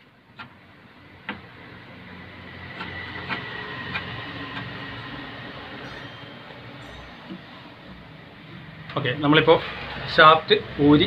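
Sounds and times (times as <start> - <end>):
machine humming with whine: 0.2 - 9.0.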